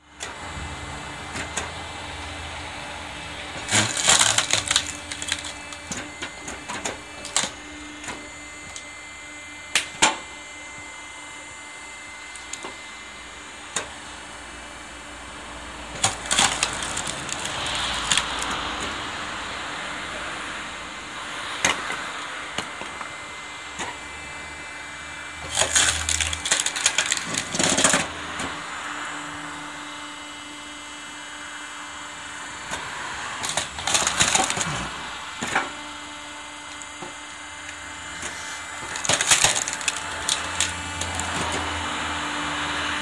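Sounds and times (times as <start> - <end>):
wood-splitting machine humming: 0.0 - 43.0
wood cracking and splitting: 3.6 - 8.9, 12.2 - 12.8, 15.9 - 19.0, 25.4 - 28.6, 33.4 - 42.0.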